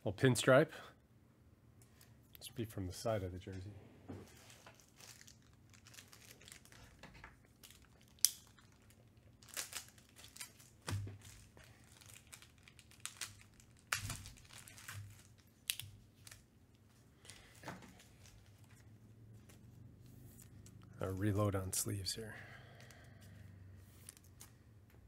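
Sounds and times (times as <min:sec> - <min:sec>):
plastic crinkling and rustling: 0:04.1 - 0:21.3, 0:23.8 - 0:24.7.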